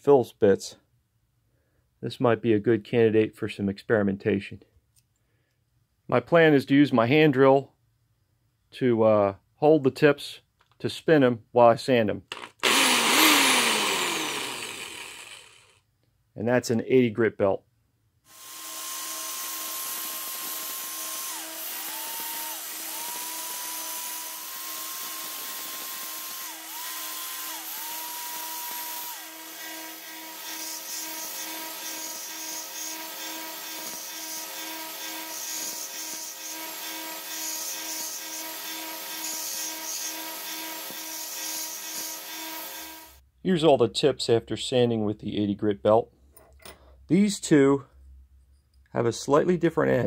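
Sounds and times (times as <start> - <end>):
belt sander running: 12.3 - 15.8, 18.3 - 43.2
hand drill whining: 12.3 - 15.8, 18.3 - 43.2.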